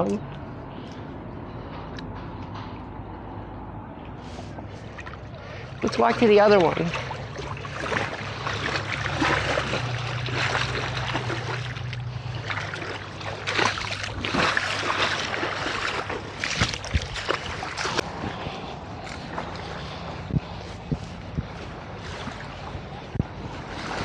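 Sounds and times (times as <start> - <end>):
low steady hum: 0.0 - 24.0
feet splashing through water: 2.7 - 24.0.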